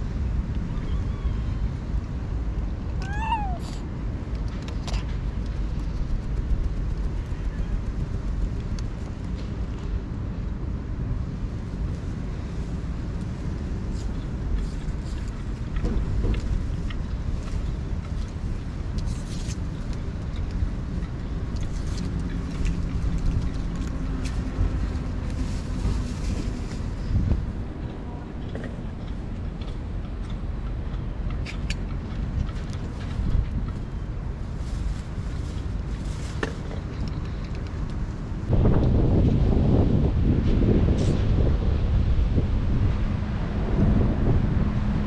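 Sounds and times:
faint engine hum: 0.0s - 45.0s
wind rumble on microphone: 0.0s - 45.0s
cat meowing: 3.0s - 3.8s.

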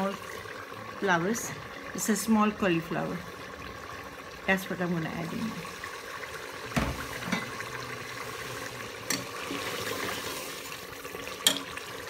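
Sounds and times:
curry bubbling in pot: 0.0s - 12.0s.

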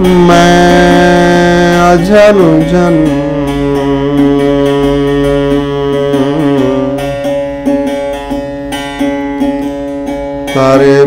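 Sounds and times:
man singing a held note: 0.0s - 7.2s
plucked string instrument: 0.0s - 11.0s.

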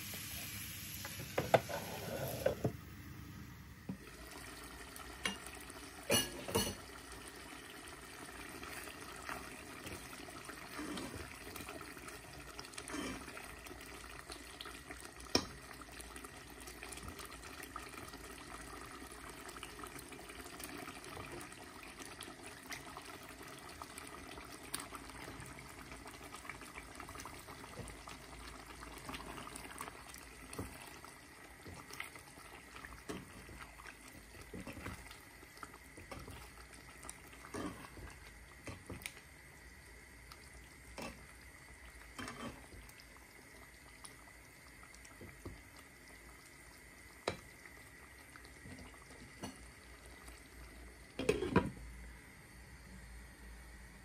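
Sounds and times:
curry simmering in a pan: 3.9s - 52.8s
glass lid clattering on pan: 6.1s - 6.8s.

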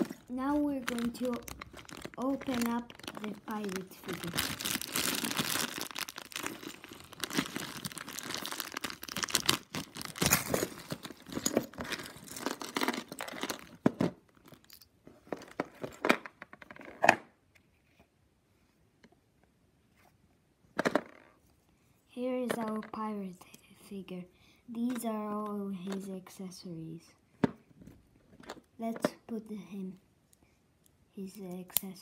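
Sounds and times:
plastic bag crinkling: 0.0s - 14.6s.

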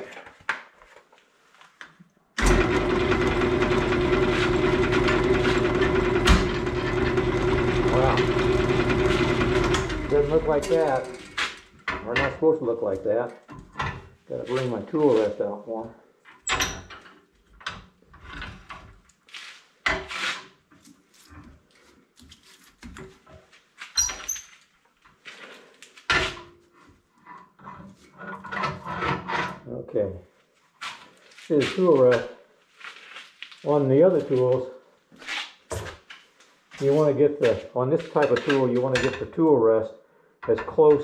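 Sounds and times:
wood lathe running: 2.4s - 11.6s.

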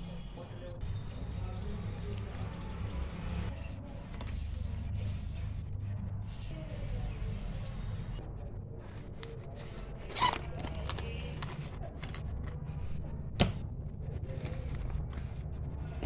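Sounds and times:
stationery rustling in fabric pouch: 9.0s - 12.6s
steady low hum: 10.8s - 16.0s.

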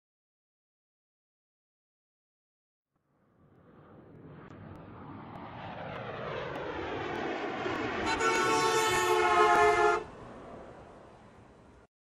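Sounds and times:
vehicle horn blast: 8.0s - 10.1s.

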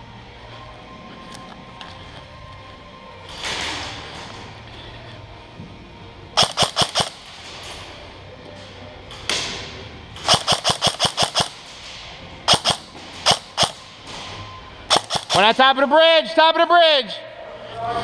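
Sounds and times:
airsoft rifle firing: 6.4s - 7.4s, 10.2s - 11.7s, 12.5s - 13.9s, 14.9s - 15.6s.

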